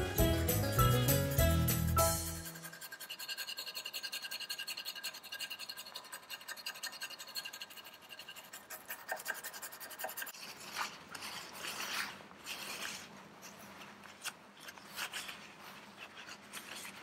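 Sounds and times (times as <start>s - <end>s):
hand tool scrubbing inside metal bore: 2.2s - 10.6s.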